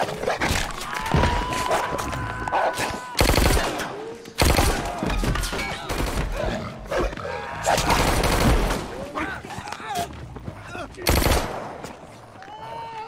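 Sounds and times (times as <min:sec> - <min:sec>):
rapid gunfire bursts: 0:03.2 - 0:05.0, 0:07.8 - 0:09.0, 0:11.0 - 0:11.7
scuffle noises: 0:09.1 - 0:11.0.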